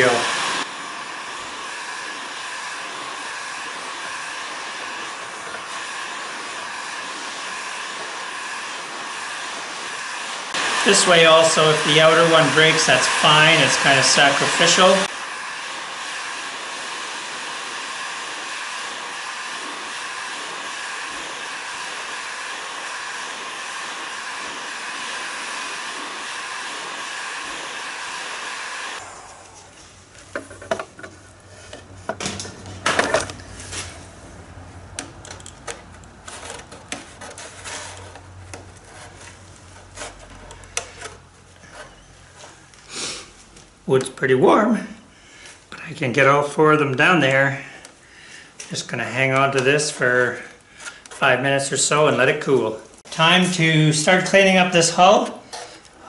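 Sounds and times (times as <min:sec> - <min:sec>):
heat gun blowing: 0:00.0 - 0:34.3, 0:34.9 - 0:44.0, 0:45.0 - 0:56.0.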